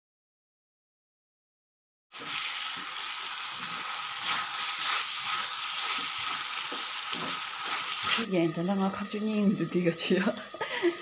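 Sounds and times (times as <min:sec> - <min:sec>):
potatoes sizzling in oil: 0:02.1 - 0:11.0
spatula scraping a pan: 0:02.2 - 0:08.3.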